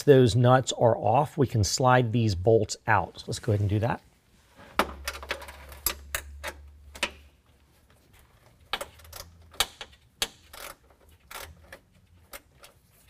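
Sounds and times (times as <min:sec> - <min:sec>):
ratcheting wrench clicking: 0:08.7 - 0:12.8.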